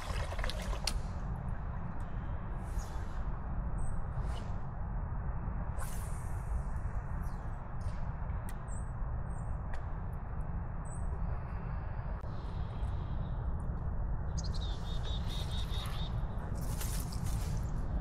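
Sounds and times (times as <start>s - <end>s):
small birds chirping: 14.3s - 16.3s.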